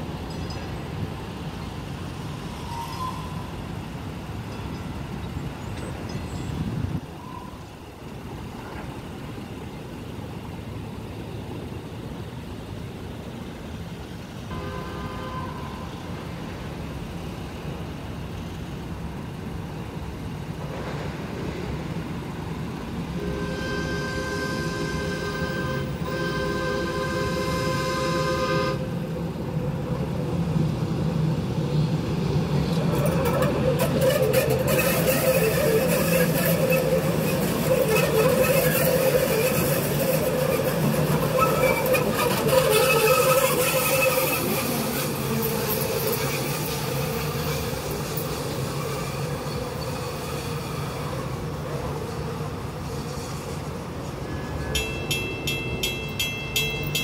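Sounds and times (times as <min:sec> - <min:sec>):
train passing with high tones: 0:00.0 - 0:57.0
train horn blasts: 0:14.5 - 0:16.0, 0:23.2 - 0:29.0, 0:34.0 - 0:53.6.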